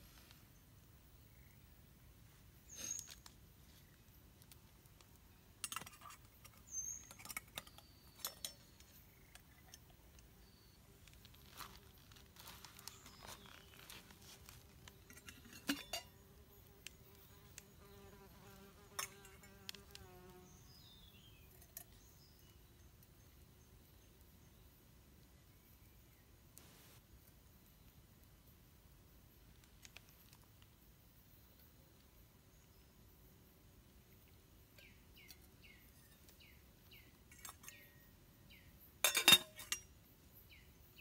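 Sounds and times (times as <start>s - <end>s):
small clicks and cracks: 4.3s - 10.3s, 29.5s - 30.8s
insect buzzing: 16.1s - 20.9s.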